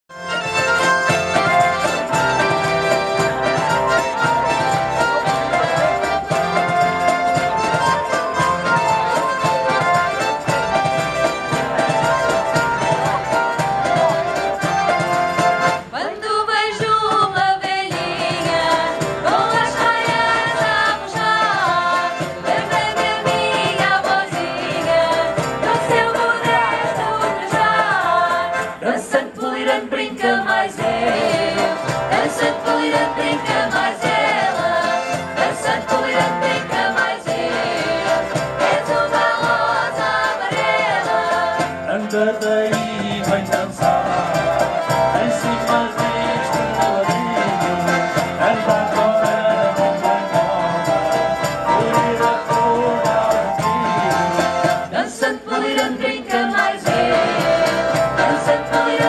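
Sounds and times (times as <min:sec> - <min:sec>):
guitars: 0:00.1 - 0:16.0, 0:30.4 - 0:59.0
keyboard: 0:00.1 - 0:59.0
women singing together: 0:15.8 - 0:41.8, 0:54.8 - 0:59.0.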